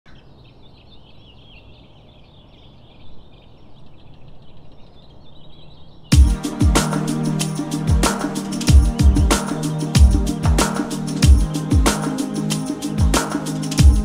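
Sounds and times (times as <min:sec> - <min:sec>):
birds chirping: 0:00.1 - 0:14.0
music with bass drum and chords: 0:06.1 - 0:14.0.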